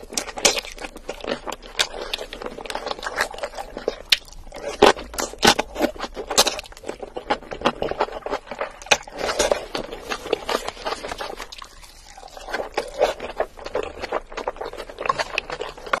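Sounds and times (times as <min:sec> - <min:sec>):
wet sticky chewing: 0:00.0 - 0:16.0
noodles slurped: 0:07.3 - 0:16.0.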